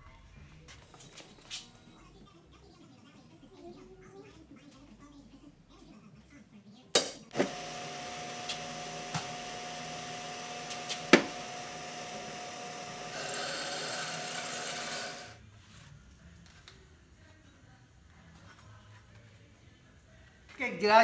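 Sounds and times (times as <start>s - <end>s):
drill press motor humming: 7.4s - 15.4s
drill bit scraping into steel: 12.1s - 15.4s.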